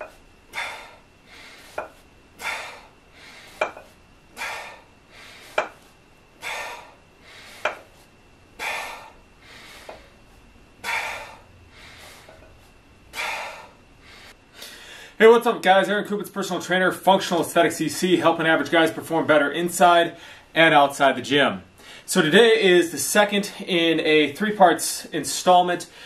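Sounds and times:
dumbbells clinking: 0.0 - 0.7, 1.7 - 2.8, 3.5 - 4.8, 5.4 - 5.8, 7.6 - 7.9, 12.2 - 12.5
man breathing out hard: 0.5 - 3.8, 4.4 - 5.8, 6.4 - 8.0, 8.6 - 10.2, 10.8 - 12.5, 13.1 - 15.2.

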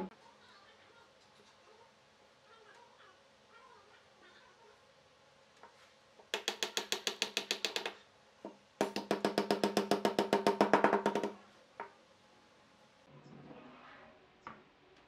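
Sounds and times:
hammer tapping on wood: 6.3 - 8.0, 8.8 - 11.9.

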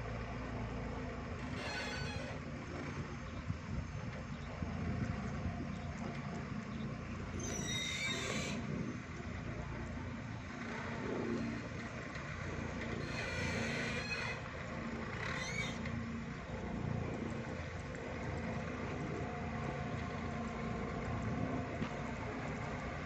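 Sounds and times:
distant forklift engine rumble: 0.0 - 23.0
short rising squeal: 1.4 - 2.5, 7.4 - 8.7, 13.0 - 14.4, 15.2 - 15.9.

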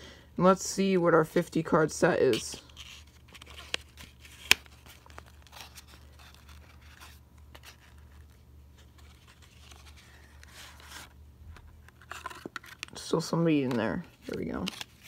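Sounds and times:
low steady hum: 0.0 - 15.0
cardboard box rustling: 2.7 - 13.0.

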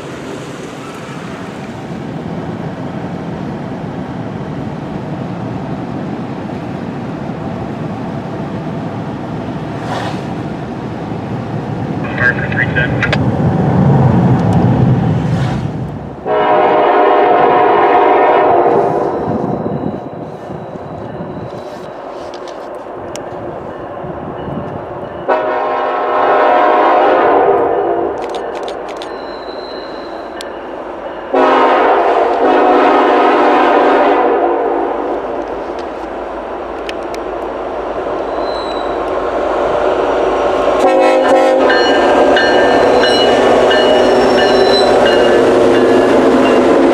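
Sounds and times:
freight cars rumbling over bridge: 0.0 - 46.9
locomotive air horn blast: 16.2 - 19.1, 25.3 - 28.2, 31.3 - 35.1, 40.8 - 46.8.

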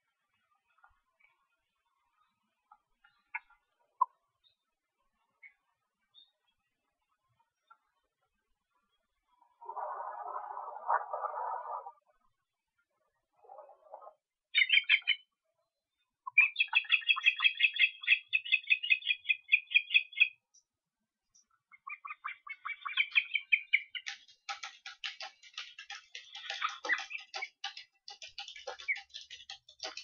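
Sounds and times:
ospreys chirping: 21.7 - 30.0
rapid sharp clicks: 23.9 - 30.0.

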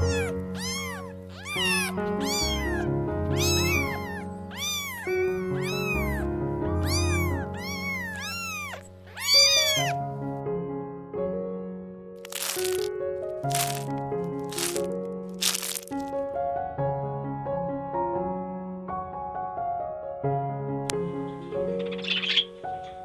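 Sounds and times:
cat meowing: 0.0 - 10.0, 12.3 - 12.8, 13.5 - 13.9, 14.5 - 16.0
soft background music: 0.0 - 11.2, 19.7 - 23.0.

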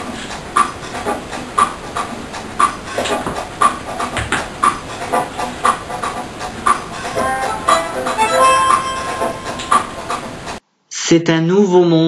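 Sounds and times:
tango music: 7.1 - 10.5.

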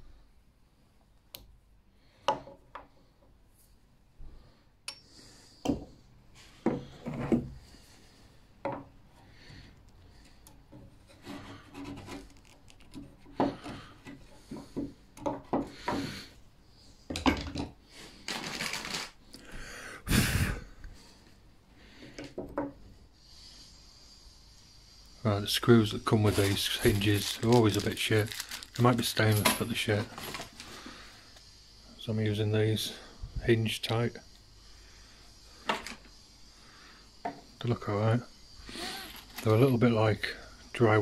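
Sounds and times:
chisel scraping hardwood: 10.9 - 14.3.

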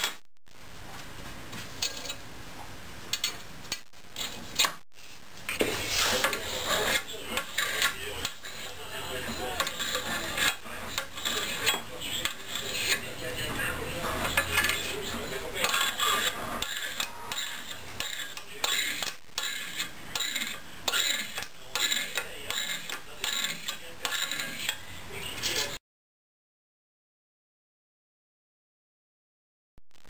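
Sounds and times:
blade scraping bamboo: 5.6 - 13.2, 14.0 - 24.8.

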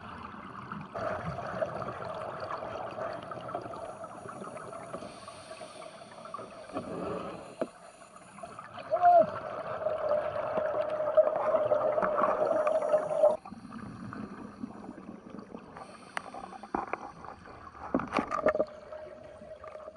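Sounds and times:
gurgling bubbles: 0.0 - 7.6, 8.5 - 19.9
divers breathing through regulators: 3.9 - 8.6, 15.8 - 17.2.

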